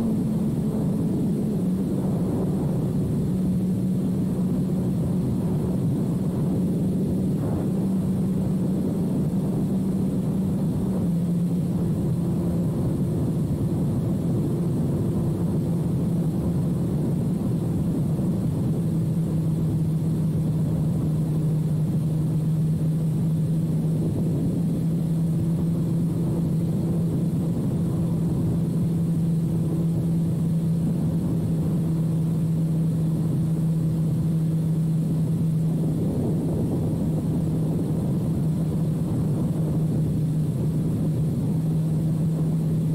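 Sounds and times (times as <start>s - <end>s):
motorcycle engine cruising: 0.0s - 42.9s.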